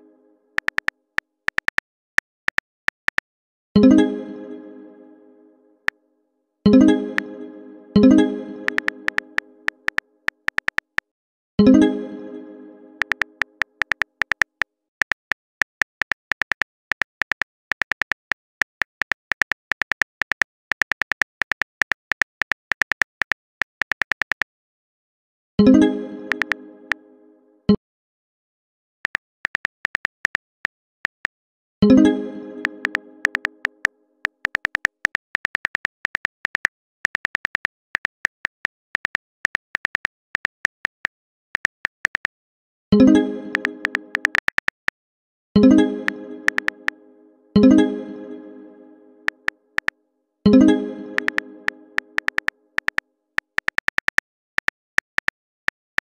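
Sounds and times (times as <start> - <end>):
phone keyboard typing clicks: 0.6 - 0.9, 1.5 - 3.2, 8.7 - 11.1, 13.0 - 24.5, 26.3 - 26.6, 29.0 - 31.3, 32.8 - 42.3, 43.5 - 44.9, 46.5 - 46.7, 49.3 - 49.9, 51.2 - 51.4, 52.0 - 56.0.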